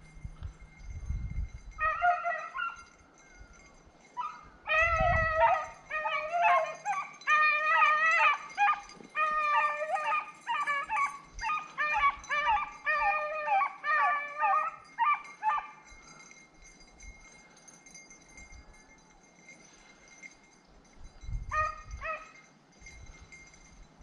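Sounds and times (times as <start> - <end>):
hunting dogs baying: 1.8 - 16.4, 21.5 - 22.4.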